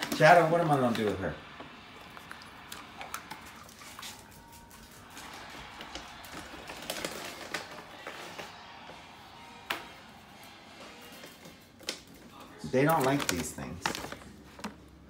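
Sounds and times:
dog claws clicking on tiles: 0:03.0 - 0:08.4.

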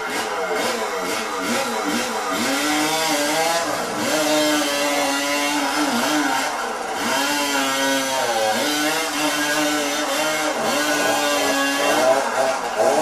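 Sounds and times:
chainsaw cutting wood: 0:00.0 - 0:13.0.

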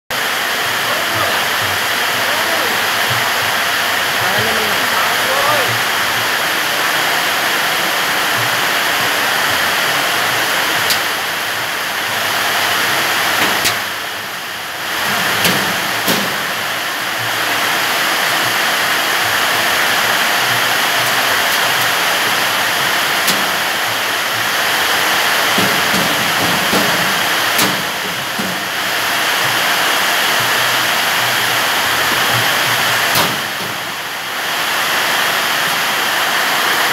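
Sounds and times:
steady rushing noise: 0:00.1 - 0:36.9
knocks of metal cabinet panels: 0:25.6 - 0:28.7.

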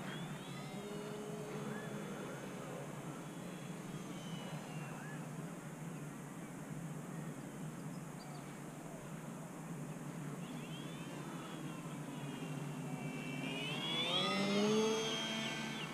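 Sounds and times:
distant model plane motor whine: 0:00.0 - 0:05.5, 0:10.4 - 0:15.9.

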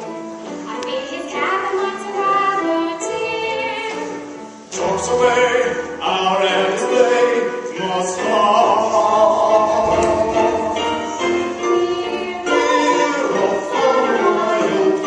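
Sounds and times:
musical accompaniment: 0:00.0 - 0:15.0.

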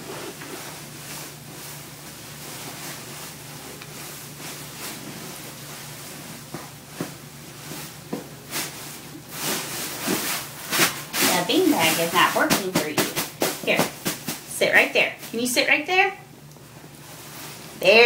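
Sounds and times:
beanbag fabric rustling: 0:00.0 - 0:14.5
low room hum: 0:00.0 - 0:18.0.

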